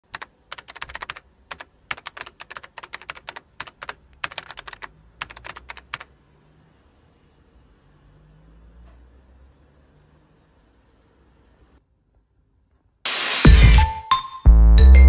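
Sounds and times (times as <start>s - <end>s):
keyboard typing clicks: 0.1s - 6.1s.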